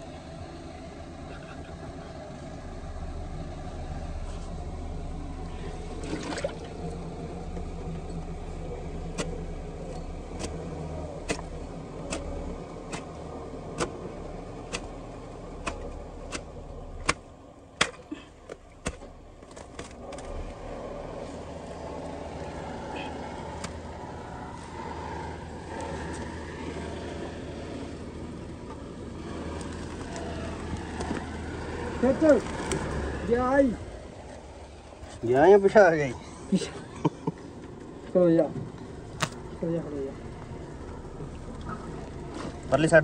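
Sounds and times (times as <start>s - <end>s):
steady low hum: 0.0s - 43.0s
hatchet chopping roots: 9.1s - 20.4s, 23.0s - 23.9s.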